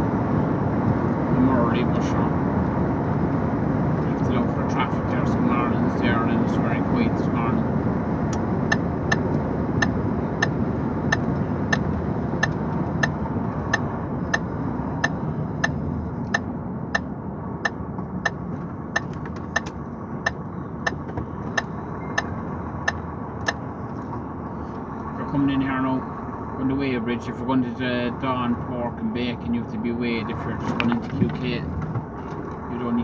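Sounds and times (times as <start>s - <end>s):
road noise: 0.0s - 33.0s
truck engine: 0.0s - 33.0s
turn signal ticking: 3.9s - 33.0s.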